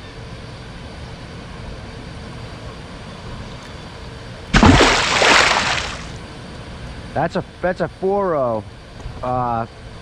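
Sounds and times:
fish splashing at surface: 4.6 - 6.2.

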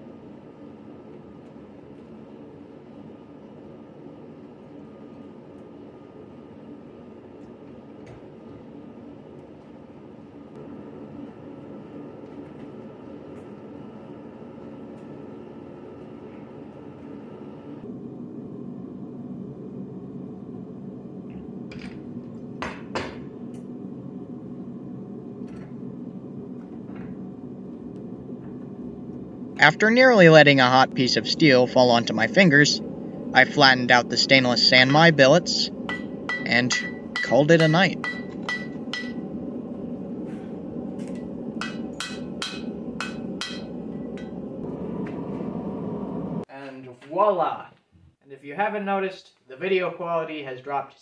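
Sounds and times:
low rumble: 23.2 - 37.3, 38.0 - 46.4
steady low rush: 23.3 - 46.5
hammer striking metal on anvil: 35.9 - 39.2, 41.6 - 44.4.

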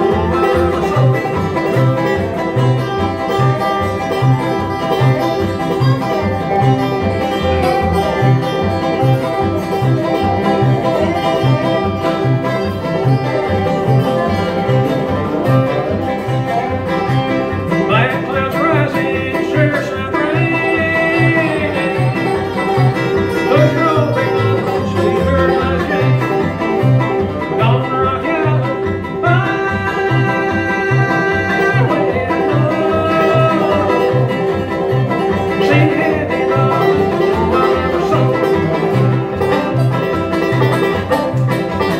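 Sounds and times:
man singing: 0.0 - 1.9, 17.8 - 39.3
acoustic guitar: 0.0 - 41.9
banjo picking: 0.0 - 41.9
bluegrass band playing: 0.0 - 41.9
upright bass: 0.0 - 41.9.

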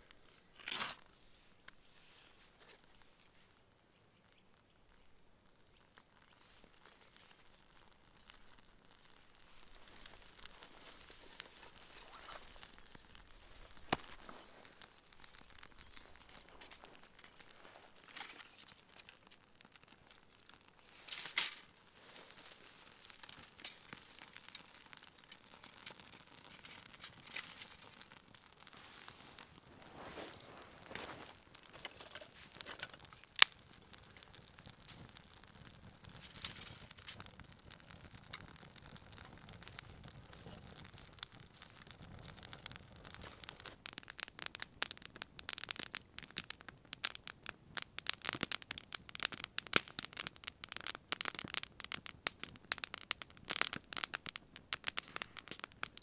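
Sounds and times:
twigs rustling: 0.0 - 3.6, 5.0 - 37.3
campfire crackling and popping: 0.0 - 56.0
sharp crack of fire: 0.0 - 56.0.

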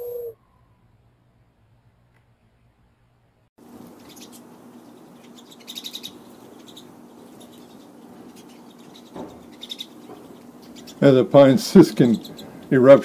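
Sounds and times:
birds twittering: 3.9 - 13.0.

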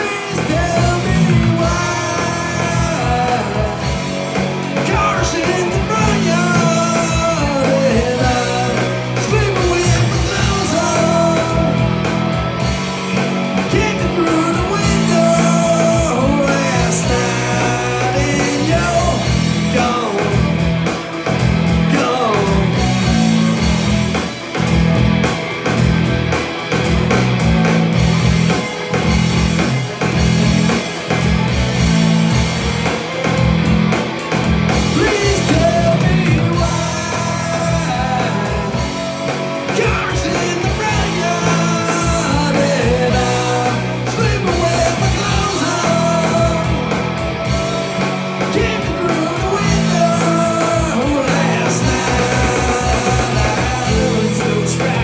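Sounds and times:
person singing: 0.0 - 23.8, 34.0 - 55.0
electric guitar: 0.0 - 55.0
rock music: 0.0 - 55.0.

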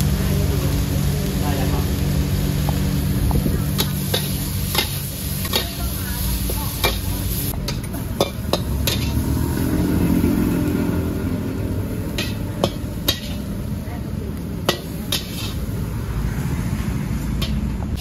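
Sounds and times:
food sizzling: 0.0 - 18.0
metal spatula clanking on wok: 3.7 - 9.3, 12.1 - 13.6, 14.6 - 15.7, 17.4 - 18.0.

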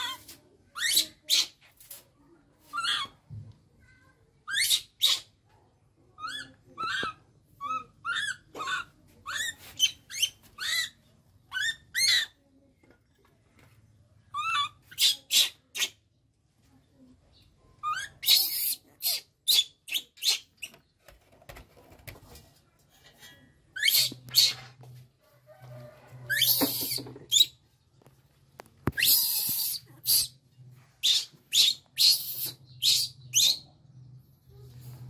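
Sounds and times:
baby monkey crying: 6.2 - 12.4, 17.8 - 20.4, 23.8 - 24.6, 31.0 - 33.6.

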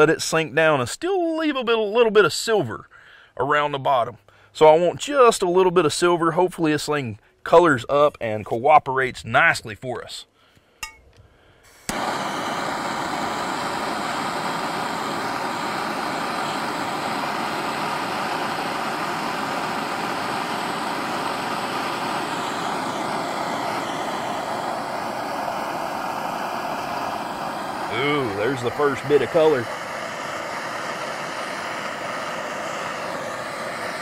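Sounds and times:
propane torch flame hissing: 11.6 - 34.0.

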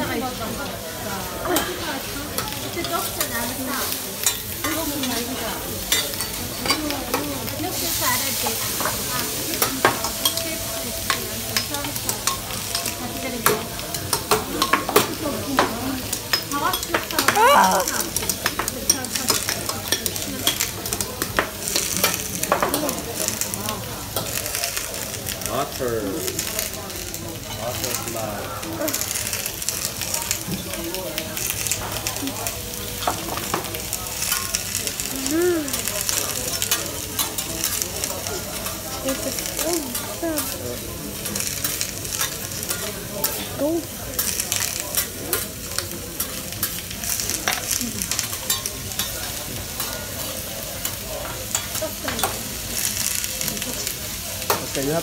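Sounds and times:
food sizzling on griddle: 0.0 - 55.0
spatula clicking on metal griddle: 46.2 - 49.1.

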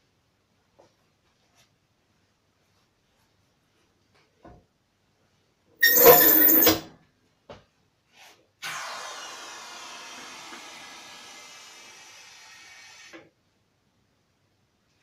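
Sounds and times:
metal arm scraping on rack: 5.8 - 6.8.

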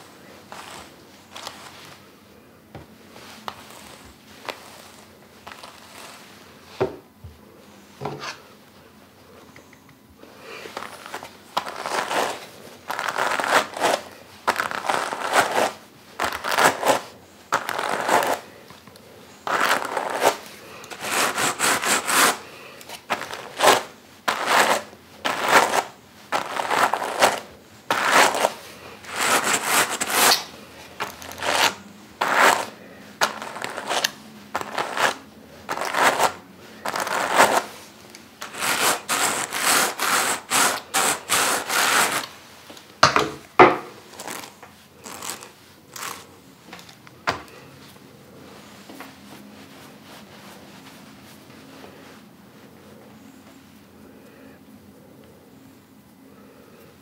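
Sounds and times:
hand cards brushing wool: 0.0 - 2.1, 2.9 - 6.8, 10.4 - 42.5, 44.0 - 47.0.

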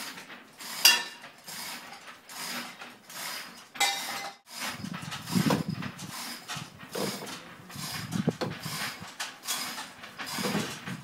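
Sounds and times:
metal clank: 0.8 - 1.4, 3.8 - 5.8.

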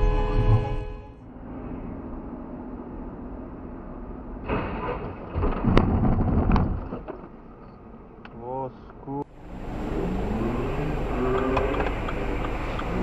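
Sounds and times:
crash of impacts and scraping: 4.4 - 7.3
road rumble inside car: 6.4 - 13.0.

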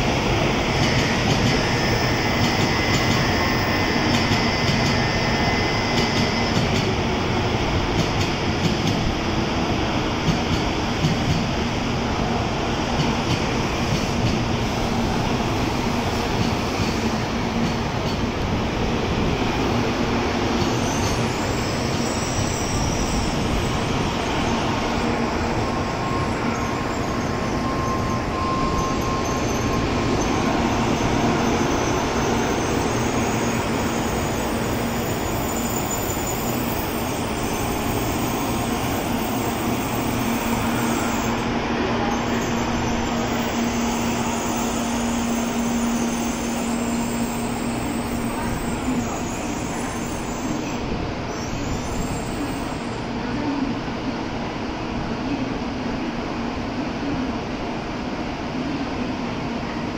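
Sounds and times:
faint high squeals: 20.6 - 24.6, 25.3 - 53.1.

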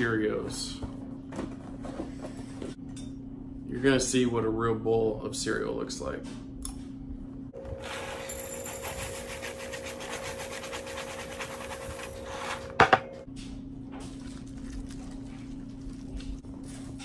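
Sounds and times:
milk pouring: 14.0 - 16.6.

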